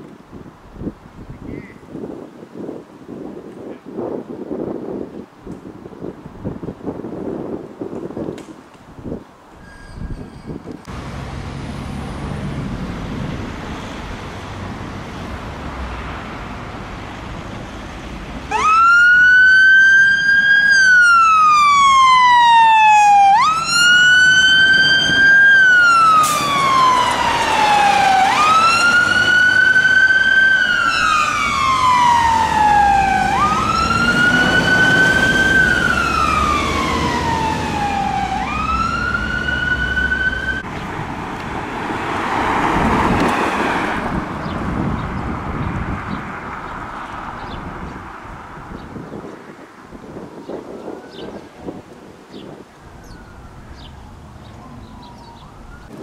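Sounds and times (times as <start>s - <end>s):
fire engine siren wailing: 18.5s - 40.7s, 52.7s - 56.0s.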